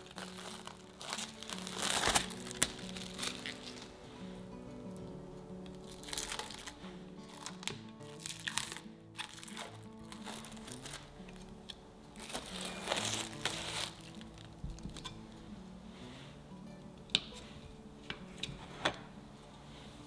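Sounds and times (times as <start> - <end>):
cling film crinkling: 0.0 - 16.3
soft background music: 0.0 - 20.0.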